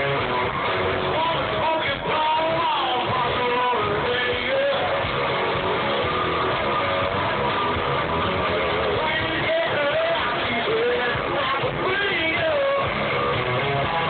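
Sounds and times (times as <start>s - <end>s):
live band playing: 0.0s - 14.0s
person singing: 1.0s - 5.8s, 8.5s - 14.0s.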